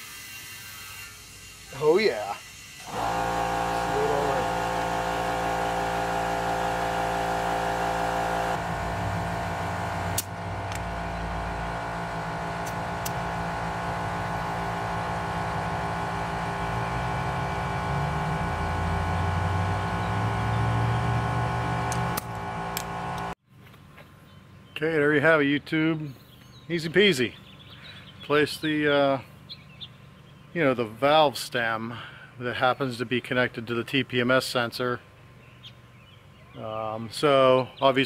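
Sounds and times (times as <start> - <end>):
air compressor motor humming: 1.2 - 23.4
sharp click: 10.1 - 10.9, 12.6 - 13.2, 21.9 - 23.3.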